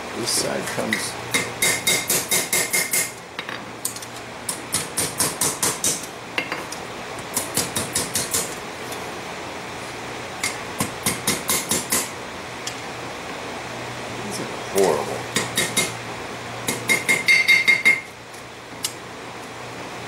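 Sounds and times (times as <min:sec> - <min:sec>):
hammer striking metal on anvil: 0:00.9 - 0:03.1, 0:10.4 - 0:12.1, 0:16.7 - 0:18.1.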